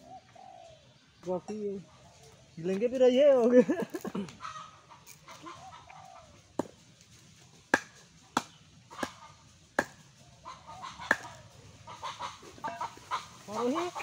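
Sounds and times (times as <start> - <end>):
machete chopping on wooden block: 6.6 - 6.8, 7.7 - 10.0, 11.0 - 11.4.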